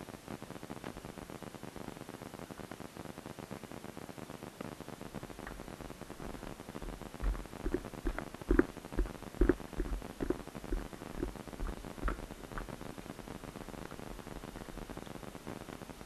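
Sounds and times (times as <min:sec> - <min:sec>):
faint steady hiss: 0:00.0 - 0:16.0
low thumps and knocks: 0:06.2 - 0:12.7.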